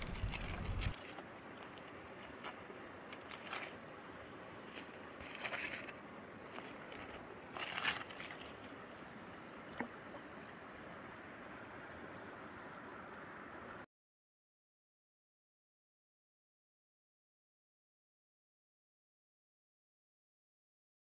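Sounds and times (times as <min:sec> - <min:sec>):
steady low hiss: 0:00.0 - 0:00.9.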